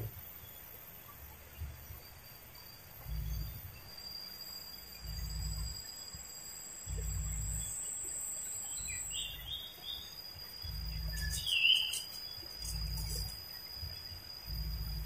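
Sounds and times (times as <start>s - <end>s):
high-pitched insect hum: 0.0s - 15.0s
bird chirping: 8.6s - 13.3s.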